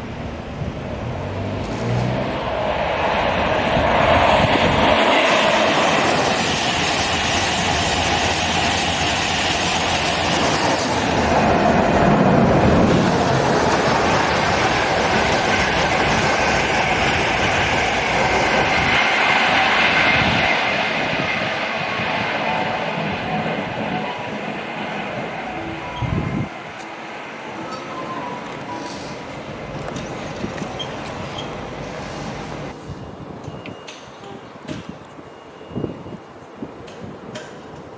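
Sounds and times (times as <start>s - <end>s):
train wheels rumbling on rails: 0.0s - 37.9s
rail joint clatter: 27.6s - 32.7s, 33.5s - 35.2s, 36.8s - 37.9s.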